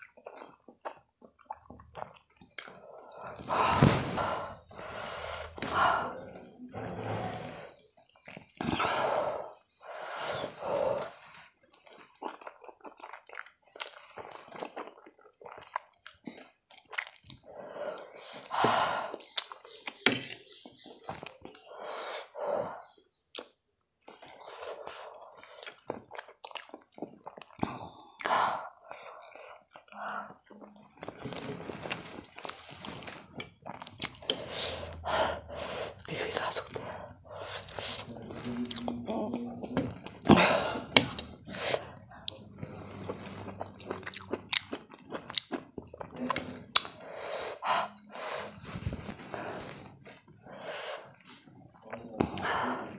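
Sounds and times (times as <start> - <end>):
wet chewing of noodles: 0.0 - 52.9
noisy breath: 3.3 - 7.9, 8.8 - 11.4, 47.0 - 51.2.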